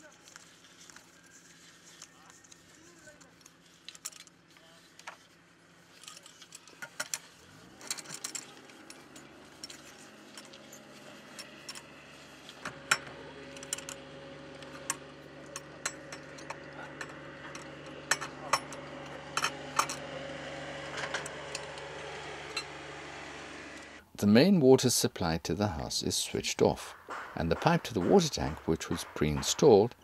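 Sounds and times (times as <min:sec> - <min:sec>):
steady low hum: 0:00.2 - 0:24.3
spanner clinking on metal fittings: 0:05.9 - 0:14.0, 0:14.6 - 0:20.1.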